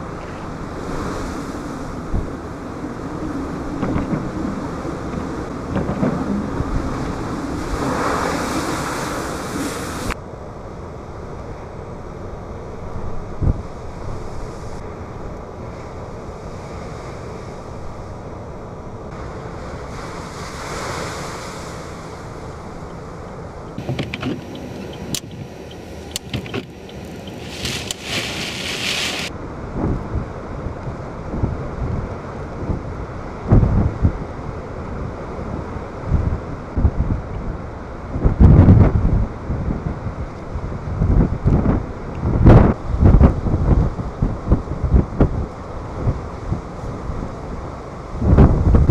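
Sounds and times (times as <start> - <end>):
surf crashing: 0.0 - 10.2, 19.1 - 22.8, 23.8 - 29.4
surf washing in: 0.0 - 48.9
wind buffeting microphone: 0.0 - 48.9
rushing hiss of water: 7.7 - 10.2, 27.3 - 29.3.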